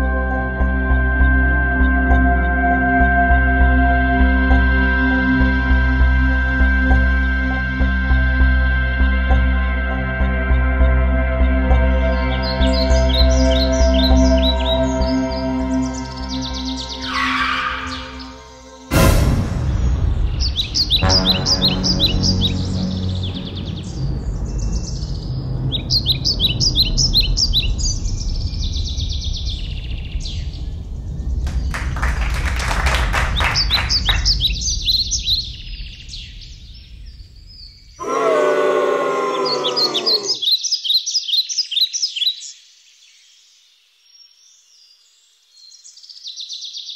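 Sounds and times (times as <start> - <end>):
small birds chirping: 10.5 - 18.9, 19.7 - 46.9
low rumble: 18.0 - 38.0.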